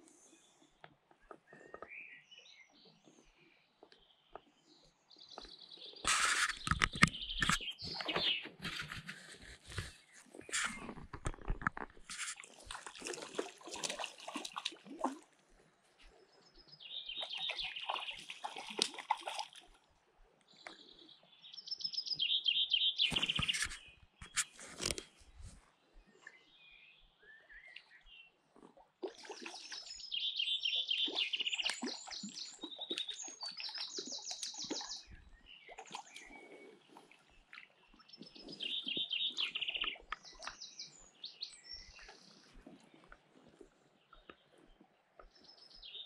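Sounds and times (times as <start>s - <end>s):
fish splashing in water: 6.1s - 15.3s, 17.2s - 19.8s, 28.5s - 29.9s, 31.0s - 40.6s
songbirds trilling: 37.9s - 42.5s.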